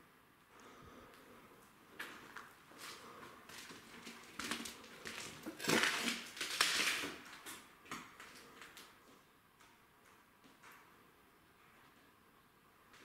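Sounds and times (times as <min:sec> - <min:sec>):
footsteps crunching over debris: 0:02.0 - 0:08.8.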